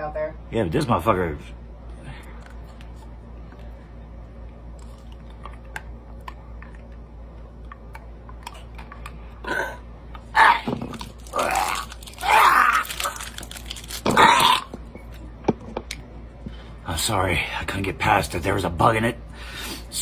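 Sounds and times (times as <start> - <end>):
man gagging and groaning: 9.4 - 13.3
hard candy crunching: 10.4 - 15.2.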